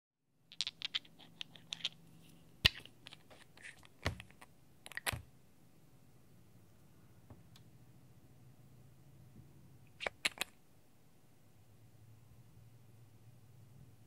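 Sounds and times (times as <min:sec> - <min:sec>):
bottles and caps clicking: 0:00.5 - 0:02.0, 0:02.6 - 0:05.3.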